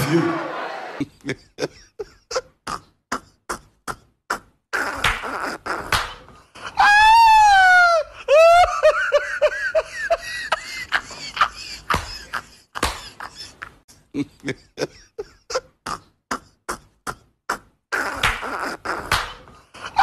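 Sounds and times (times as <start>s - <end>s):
person's high wavering cry: 6.7s - 8.9s
short clipped vocal sounds: 15.9s - 19.5s.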